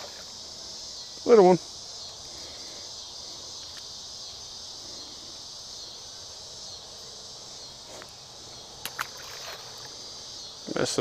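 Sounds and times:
insects trilling: 0:00.0 - 0:11.0
small splash in water: 0:08.8 - 0:09.9.

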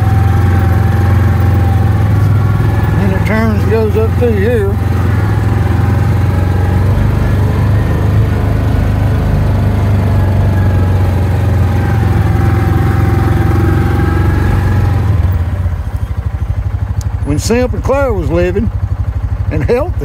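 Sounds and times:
utility vehicle engine running: 0:00.0 - 0:20.0.

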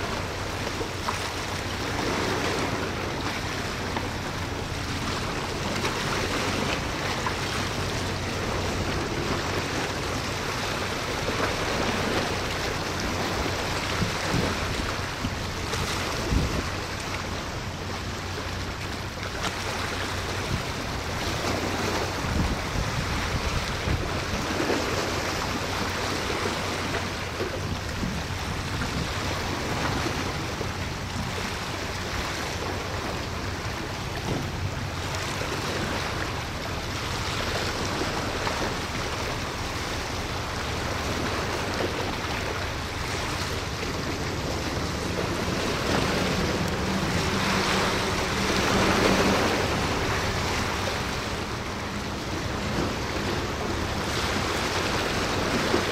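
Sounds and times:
boat engine drone: 0:00.0 - 0:55.9
sea water washing: 0:00.0 - 0:55.9
wind on microphone: 0:01.6 - 0:17.6, 0:20.3 - 0:39.0
higher engine tone: 0:42.9 - 0:55.7.

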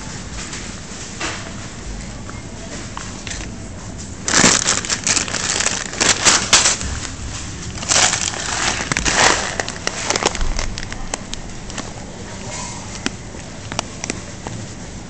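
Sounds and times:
packaging crinkling: 0:03.0 - 0:14.7.

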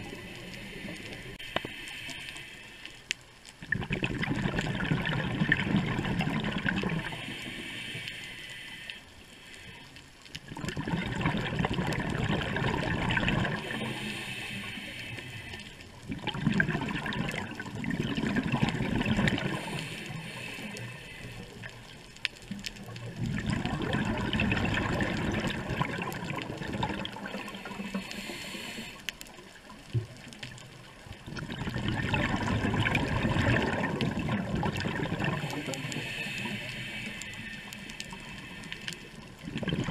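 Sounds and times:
regulator inhalation hiss: 0:00.2 - 0:03.1, 0:07.1 - 0:10.0, 0:13.6 - 0:15.8, 0:19.4 - 0:21.6, 0:27.4 - 0:29.1, 0:35.4 - 0:39.2
exhaled bubbles rushing underwater: 0:03.6 - 0:07.7, 0:10.4 - 0:14.4, 0:15.9 - 0:28.4, 0:29.4 - 0:39.9.

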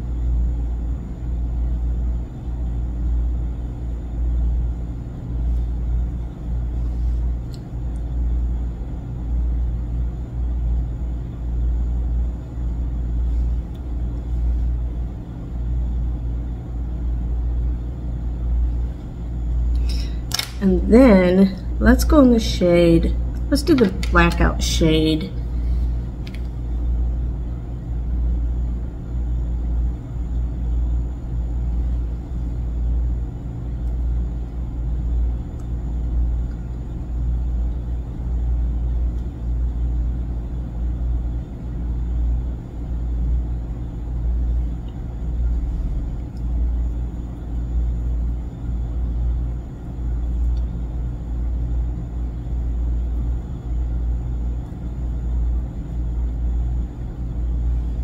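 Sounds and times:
loud low rumble: 0:44.2 - 0:48.4.

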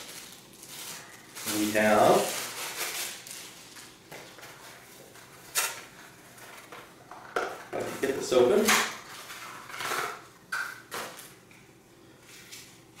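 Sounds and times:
packaging rustling and crinkling: 0:00.0 - 0:10.1.

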